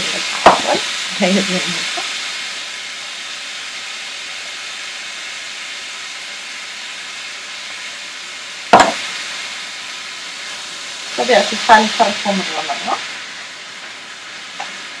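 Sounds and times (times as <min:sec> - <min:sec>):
meat and onion sizzling in pan: 0:00.0 - 0:15.0
sharp knock: 0:08.7 - 0:09.0.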